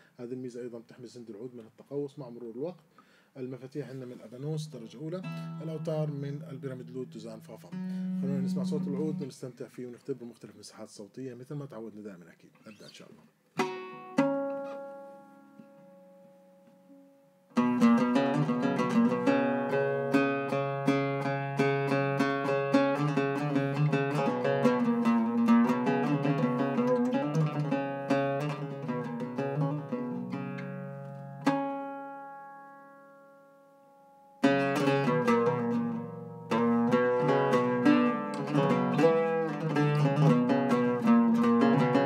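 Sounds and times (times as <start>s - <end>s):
oud plucked notes: 4.4s - 9.4s, 13.6s - 42.0s.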